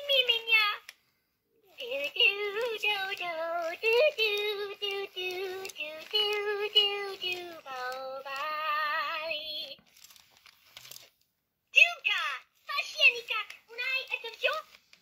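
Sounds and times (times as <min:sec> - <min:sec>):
toy singing electronic voice: 0:01.6 - 0:09.8.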